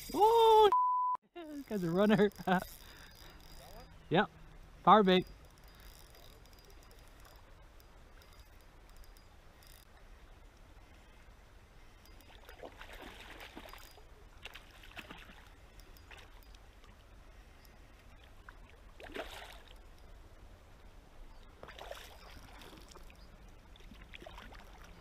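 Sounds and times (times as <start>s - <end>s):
river water running: 1.5s - 25.0s
water splashing: 12.3s - 13.8s, 18.2s - 19.8s, 21.6s - 23.1s, 23.7s - 25.0s.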